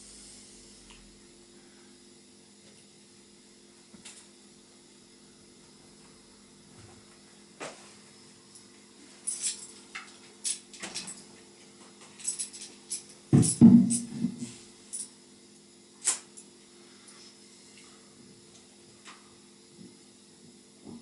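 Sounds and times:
tambourine jingles: 0:08.5 - 0:11.3, 0:12.1 - 0:15.2.

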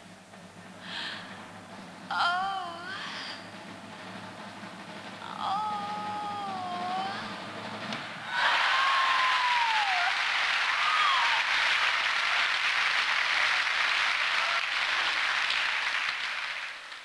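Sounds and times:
audience applauding: 0:08.3 - 0:17.0.

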